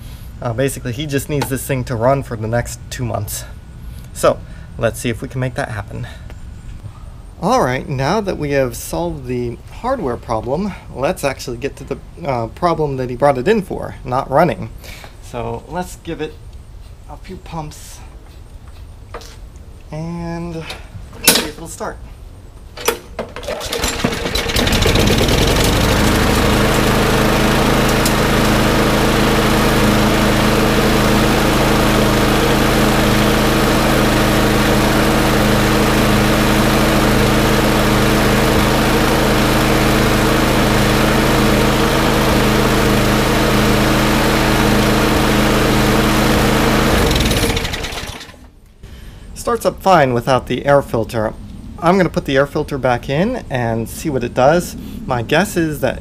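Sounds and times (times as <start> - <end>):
lawn mower engine running: 0.8 - 2.8, 22.8 - 48.6.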